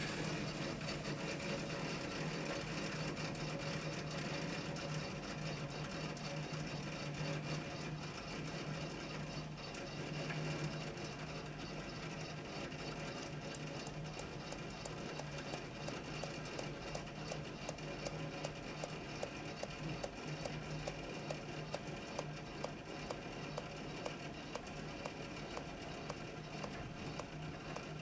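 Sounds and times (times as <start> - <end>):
low mechanical motor hum: 0.0 - 28.0
sharp regular ticks: 22.2 - 27.9.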